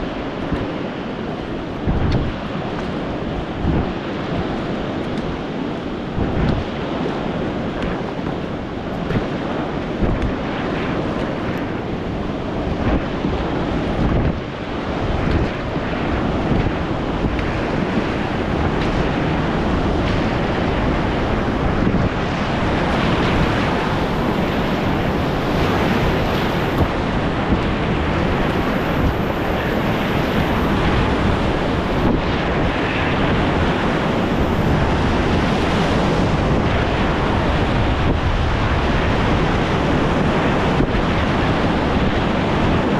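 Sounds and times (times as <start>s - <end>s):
waves splashing over bow: 0.0s - 42.9s
whitewater rushing: 14.4s - 42.9s.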